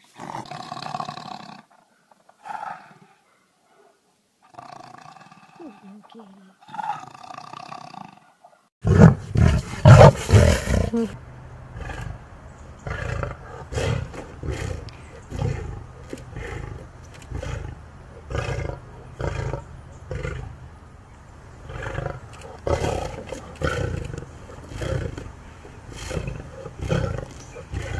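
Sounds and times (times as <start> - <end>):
lioness roaring: 6.6 - 12.2, 12.8 - 20.6, 21.6 - 27.9.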